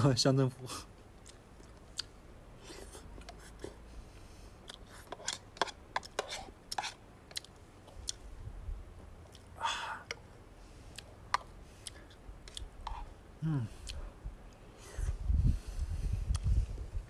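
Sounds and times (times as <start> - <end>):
chewing: 1.2 - 2.1, 4.6 - 8.2, 10.9 - 13.1
metal spoon scraping a bowl: 5.0 - 7.0.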